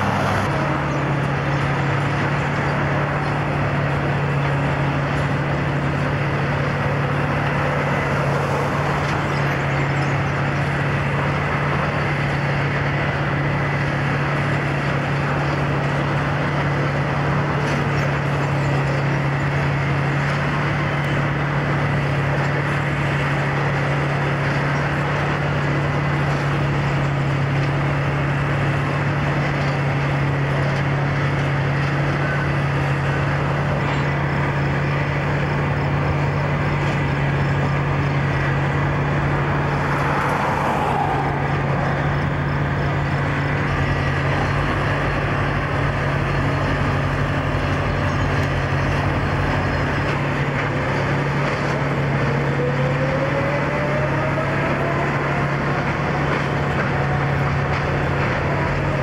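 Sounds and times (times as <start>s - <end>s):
diesel engine drone: 0.0s - 59.0s
machine whine: 25.6s - 59.0s.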